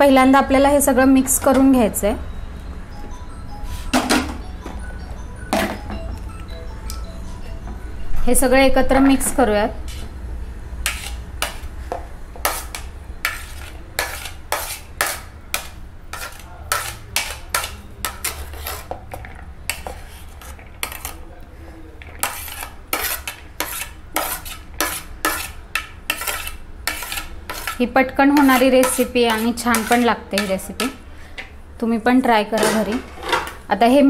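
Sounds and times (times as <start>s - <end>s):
spoon scraping plastic bowl: 10.9s - 11.7s, 12.4s - 21.3s, 22.0s - 31.0s.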